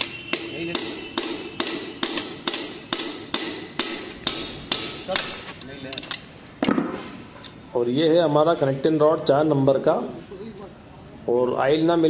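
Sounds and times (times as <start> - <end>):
hammer striking metal: 0.0 - 7.0.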